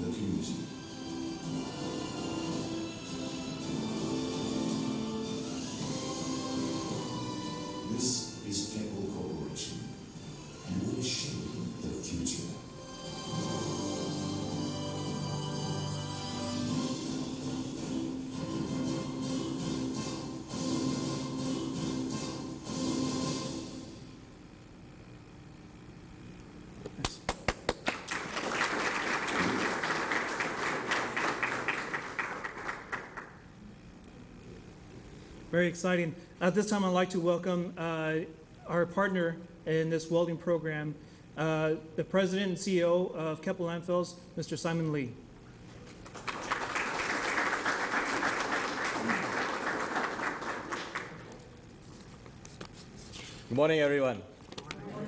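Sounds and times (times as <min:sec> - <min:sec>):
audience applauding: 0:27.0 - 0:33.5, 0:46.0 - 0:51.6.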